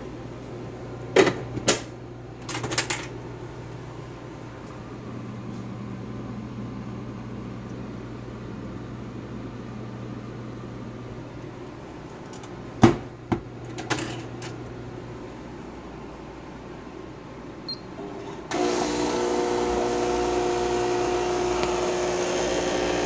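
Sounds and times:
coffee machine humming: 17.9s - 23.0s.

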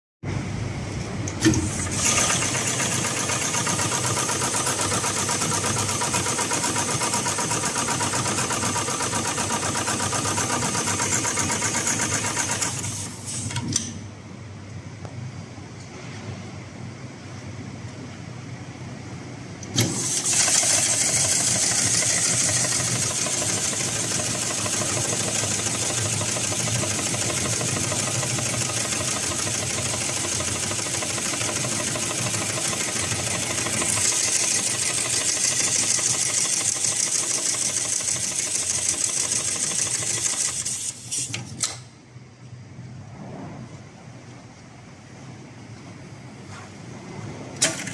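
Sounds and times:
sewing machine stitching: 1.4s - 13.4s, 19.7s - 41.0s.

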